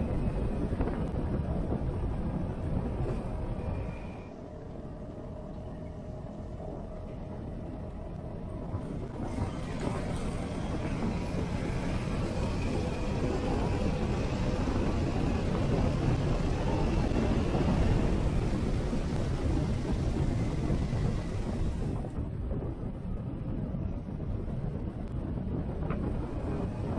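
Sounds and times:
scooter engine riding: 6.4s - 22.1s.

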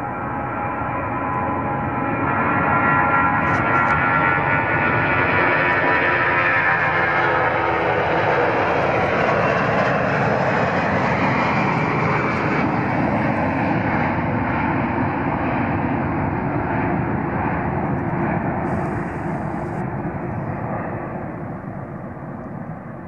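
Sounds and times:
jet airliner climbing away: 2.2s - 23.0s.

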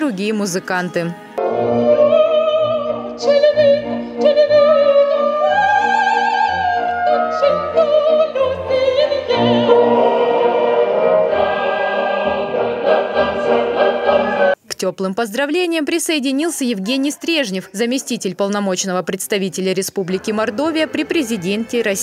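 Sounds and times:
musical accompaniment: 0.0s - 14.6s, 20.1s - 22.0s
woman singing operatically: 0.1s - 10.1s.

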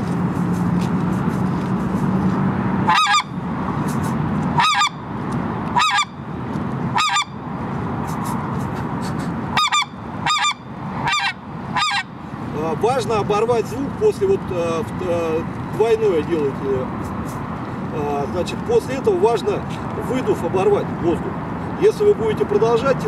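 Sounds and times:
goose call yodeled honks: 2.9s - 3.3s, 4.6s - 5.0s, 5.8s - 6.2s, 6.9s - 7.4s, 9.5s - 12.1s.

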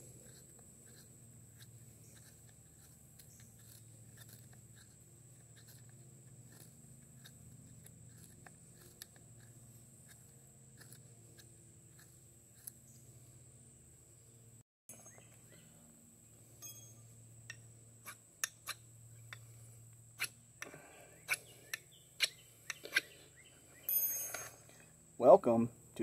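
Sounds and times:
knife shaving dry stick: 0.0s - 13.4s, 17.4s - 23.2s.

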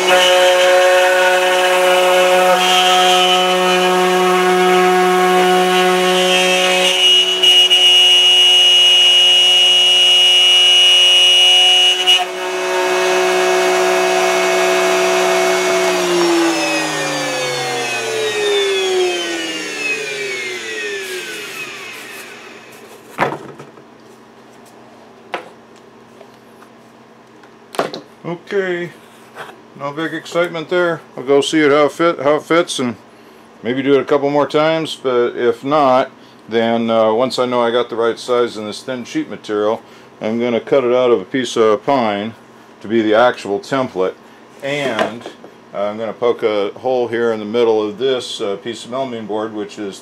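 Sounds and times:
router cutting hardboard: 0.0s - 22.9s
high steady whine: 0.0s - 23.2s.

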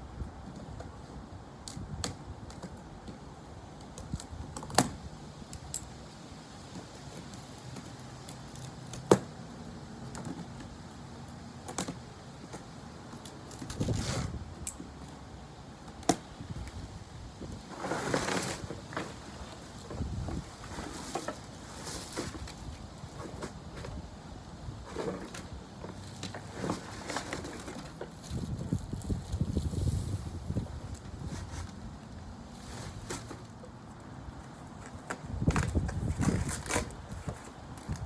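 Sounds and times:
plastic wrap and cardboard rustling: 16.7s - 24.1s, 24.7s - 33.6s, 34.6s - 38.0s.

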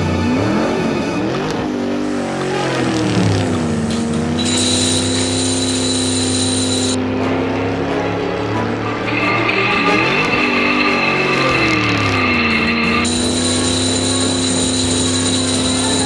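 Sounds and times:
racing car engine revving: 0.0s - 16.0s
high steady tone: 4.4s - 7.0s, 8.7s - 16.0s.

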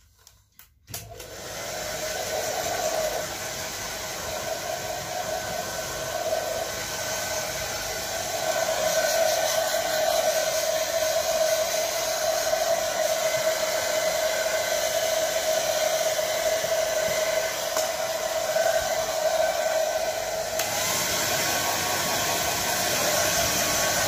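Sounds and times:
hair dryer running: 0.9s - 24.0s.

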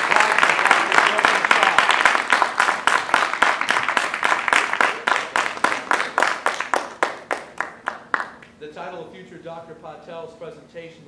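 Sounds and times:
audience applause: 0.0s - 8.4s.

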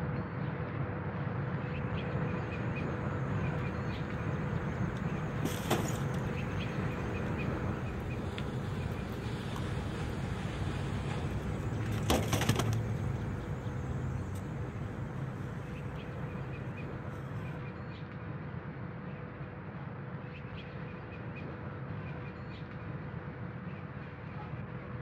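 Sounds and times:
steady low hum: 1.3s - 17.7s.

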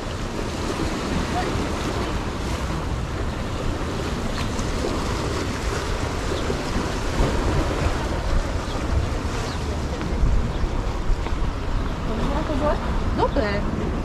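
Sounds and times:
small waves on shore: 0.0s - 14.0s
wind buffeting microphone: 0.0s - 14.0s.

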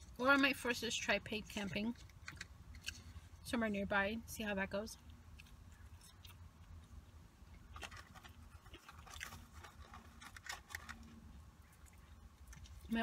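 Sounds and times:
low background rumble: 0.0s - 13.0s
person chewing food: 1.4s - 3.4s, 5.0s - 13.0s
soft crunches: 5.3s - 13.0s.

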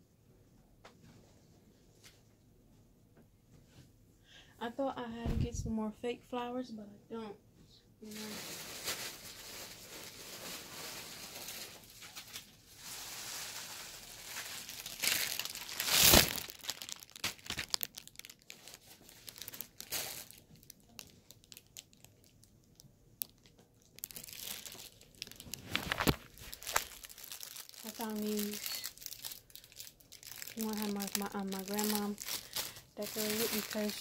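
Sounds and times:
plastic wrapping crinkling: 8.0s - 34.0s.

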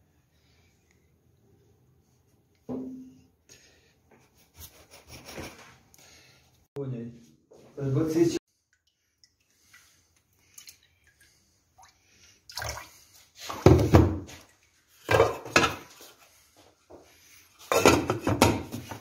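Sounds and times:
water splashing in a pot: 8.6s - 13.8s.

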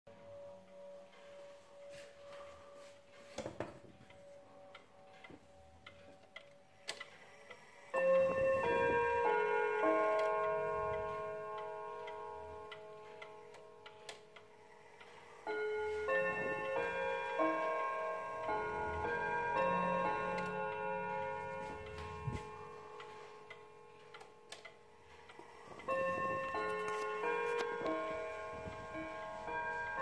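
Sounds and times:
clock chime rods ringing: 0.1s - 30.0s
wall clock ticking: 0.1s - 30.0s.

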